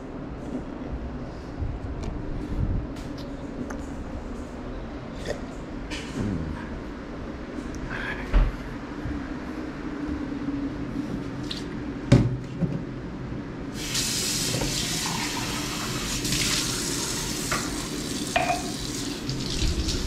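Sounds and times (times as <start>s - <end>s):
tap water running into sink: 13.8s - 20.0s.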